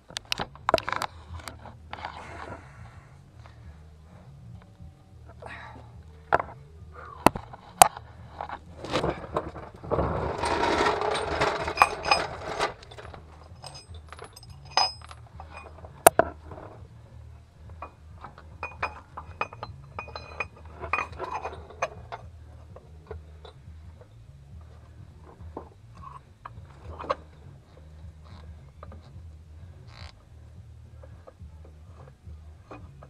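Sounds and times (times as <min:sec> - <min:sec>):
metal scraping and rattling: 0:07.2 - 0:30.2
hand tools clinking on metal: 0:10.3 - 0:16.7, 0:17.7 - 0:23.6.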